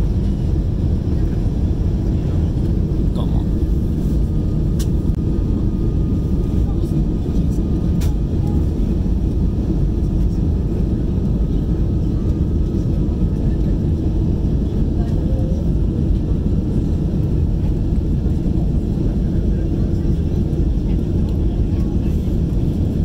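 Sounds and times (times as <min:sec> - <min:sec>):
aircraft cabin engine roar: 0:00.0 - 0:23.0.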